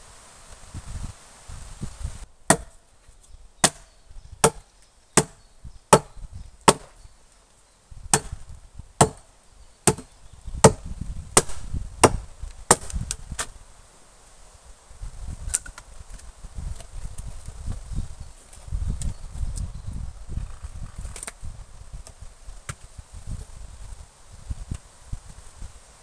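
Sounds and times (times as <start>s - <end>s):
axe chopping wood: 2.5s - 2.8s, 3.6s - 4.6s, 5.2s - 7.0s, 8.1s - 13.5s.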